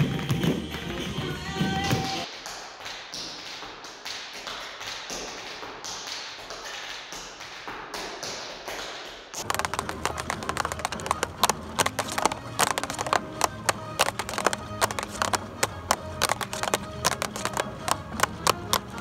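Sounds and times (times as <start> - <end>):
music: 0.0 - 2.3, 9.4 - 19.0
tap shoes striking floor: 3.2 - 19.0.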